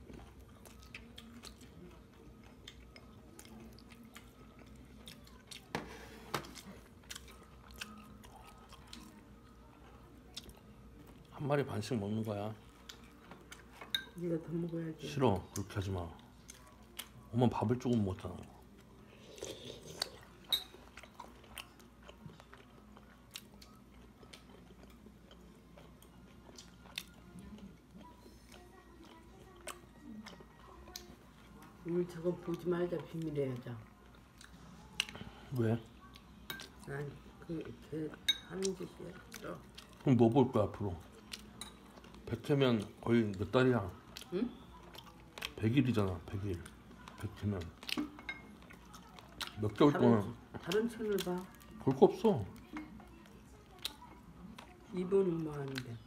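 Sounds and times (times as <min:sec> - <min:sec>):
person chewing: 0:00.0 - 0:05.8, 0:06.4 - 0:11.3, 0:18.5 - 0:31.8, 0:33.9 - 0:36.9, 0:41.0 - 0:49.8, 0:52.5 - 0:54.8.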